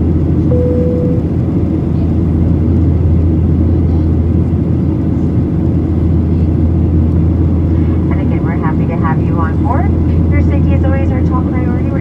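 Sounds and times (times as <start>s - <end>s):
jet engines droning in cabin: 0.0s - 12.0s.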